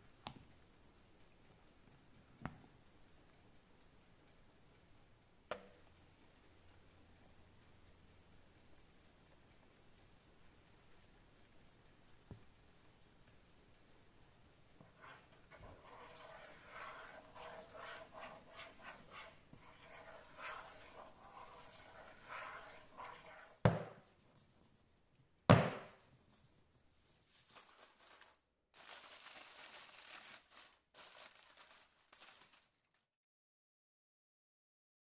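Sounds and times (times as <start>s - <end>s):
wooden stick scraping through batter: 14.8s - 24.8s
cake pan knocking on counter: 23.6s - 24.0s, 25.5s - 26.0s
aluminium foil crinkling: 26.9s - 33.2s.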